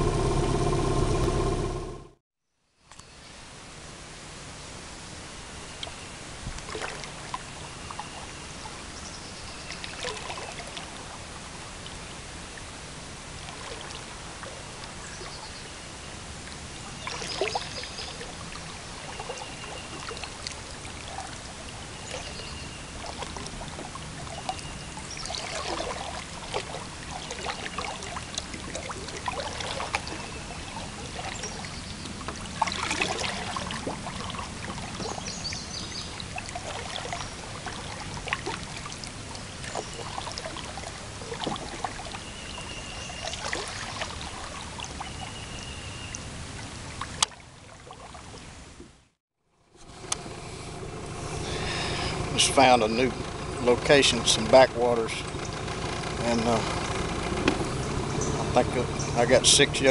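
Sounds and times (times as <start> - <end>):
low steady hum: 0.0 - 2.2, 49.7 - 59.9
water splashing off paddle: 17.0 - 45.6, 49.8 - 59.9.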